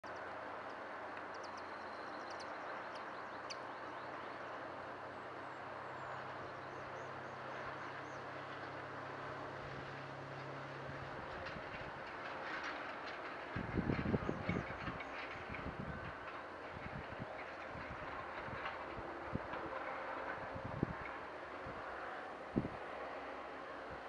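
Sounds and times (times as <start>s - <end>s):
distant train rumble: 0.0s - 24.0s
low engine hum: 0.0s - 24.0s
small birds chirping: 1.2s - 8.3s.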